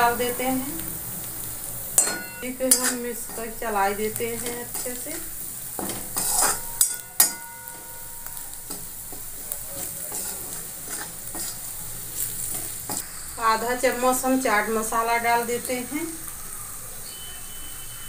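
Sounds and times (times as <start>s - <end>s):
onions sizzling in oil: 0.0s - 18.0s
metal clanging on pan: 2.0s - 3.7s, 4.3s - 13.0s
metal spatula scraping and stirring: 2.0s - 13.1s.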